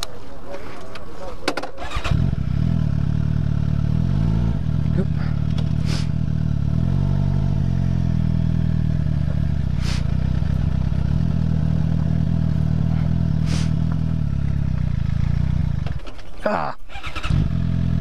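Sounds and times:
motorcycle engine at low revs: 1.6 - 18.0
short hissing sounds: 5.8 - 6.2, 9.8 - 10.2, 13.4 - 13.8.

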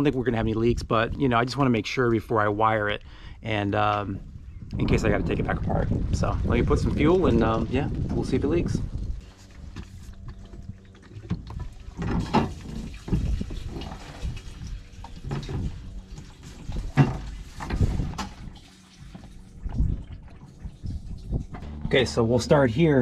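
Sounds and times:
fuel pouring through a hose: 4.8 - 21.7
jug and hose knocking: 9.3 - 22.1.

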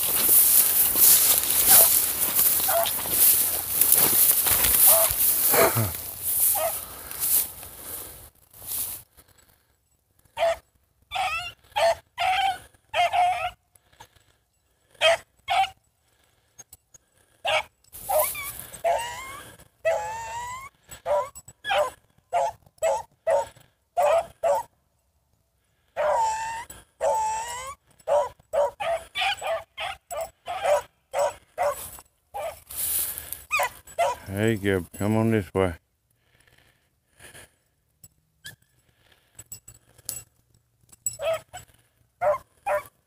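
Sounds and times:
hounds barking and bawling: 0.0 - 8.0, 10.3 - 13.6, 15.0 - 15.8, 17.4 - 24.7, 25.8 - 34.3, 41.1 - 43.0.

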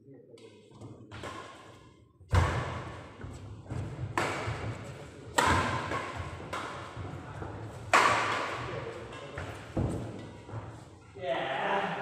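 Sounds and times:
racket hitting shuttlecock: 1.1 - 10.4.

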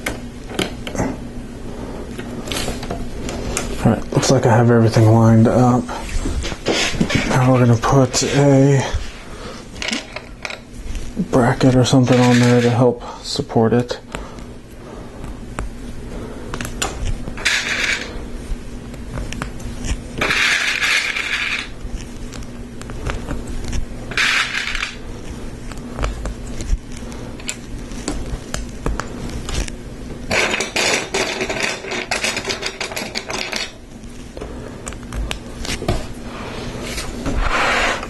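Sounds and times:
plastic parts clattering and scraping: 11.9 - 12.9, 20.2 - 21.7, 24.1 - 25.0, 30.3 - 33.8.

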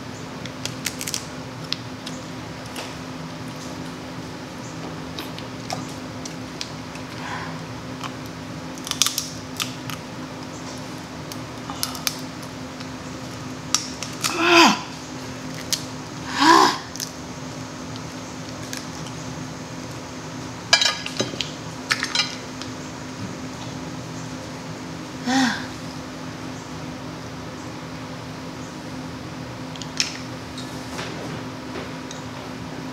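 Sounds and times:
crab shell cracking: 0.5 - 2.2, 8.0 - 10.0, 11.2 - 12.9, 13.7 - 14.4, 15.4 - 15.9.

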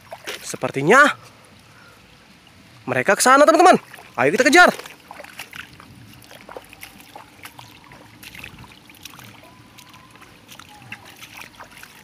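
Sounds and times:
footsteps on dry dirt: 4.0 - 12.0.

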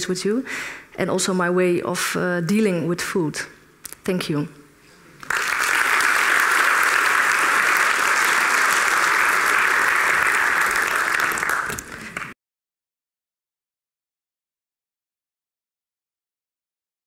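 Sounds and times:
audience applauding: 5.2 - 12.4.

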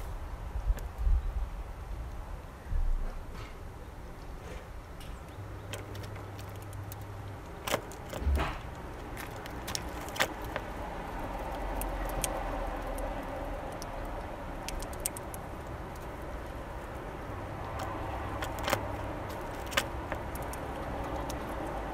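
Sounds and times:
passing vehicle hum: 4.8 - 21.9
bird pecking seeds: 5.1 - 21.9.

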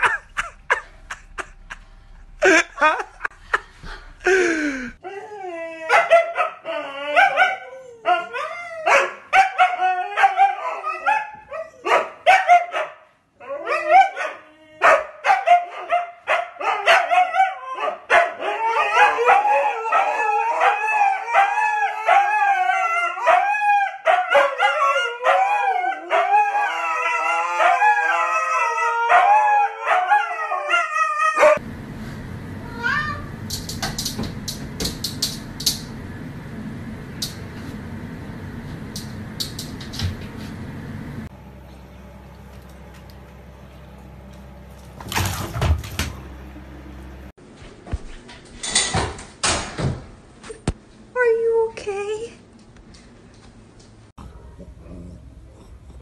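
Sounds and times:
huskies howling and yipping: 5.0 - 12.8, 13.4 - 16.0, 16.6 - 31.6.

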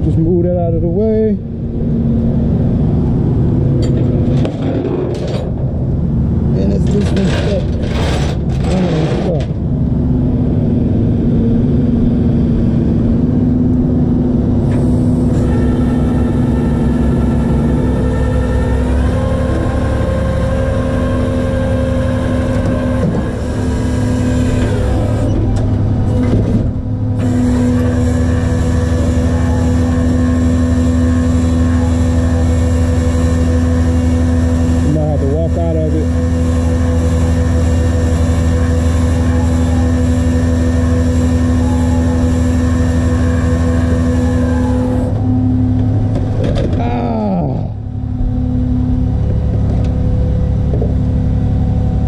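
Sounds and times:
road noise: 0.0 - 52.0
truck engine running: 0.0 - 52.0.

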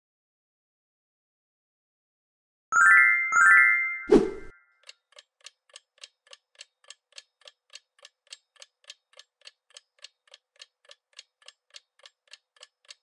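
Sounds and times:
clock ticking: 4.8 - 13.0.

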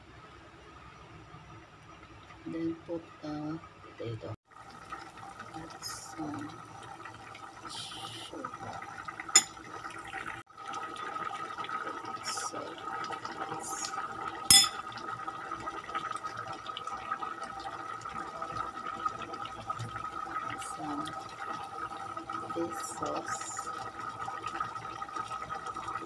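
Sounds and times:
stew bubbling in a pot: 0.8 - 26.0
spoon clinking against pot: 9.4 - 9.6, 14.5 - 14.8.

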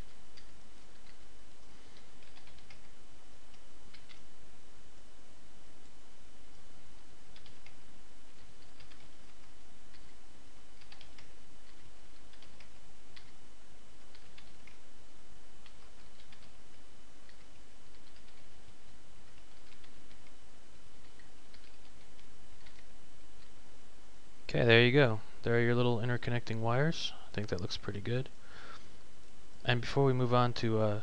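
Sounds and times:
low background hum: 0.0 - 31.0
keyboard and mouse clicking: 2.0 - 4.2, 7.3 - 10.2, 10.8 - 13.4, 14.1 - 14.8, 15.6 - 16.6, 17.2 - 20.4, 21.0 - 23.5.

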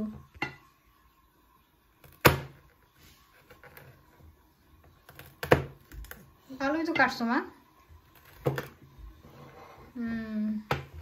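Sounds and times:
knife chopping on cutting board: 2.0 - 2.6, 5.1 - 6.2.

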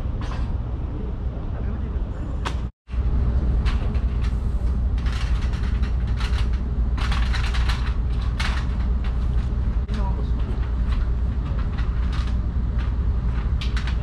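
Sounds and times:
low rumble: 0.0 - 14.0.

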